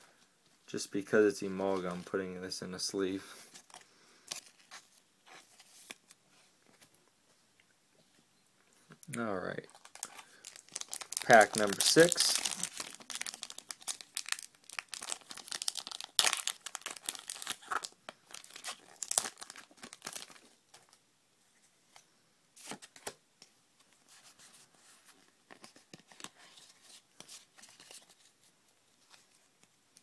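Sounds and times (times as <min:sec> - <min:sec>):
foil wrapper tearing and crinkling: 0:09.7 - 0:20.9.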